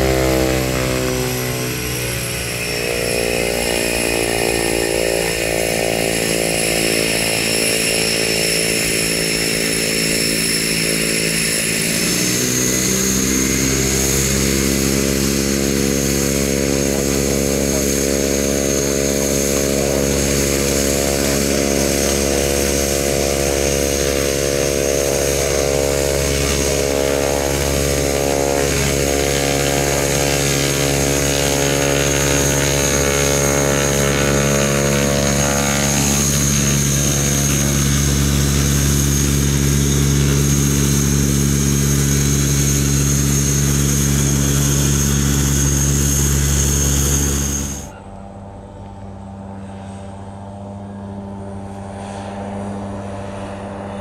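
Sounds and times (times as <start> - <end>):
high whine: 0.0 - 54.0
propeller aircraft engines droning: 0.0 - 54.0.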